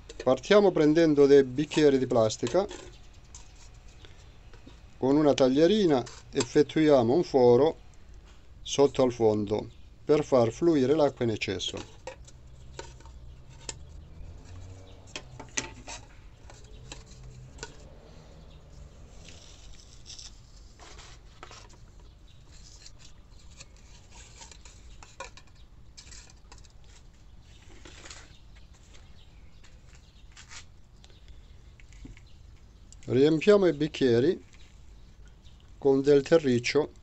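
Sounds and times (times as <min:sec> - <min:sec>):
knife cutting plastic cups: 0:10.2 - 0:18.0.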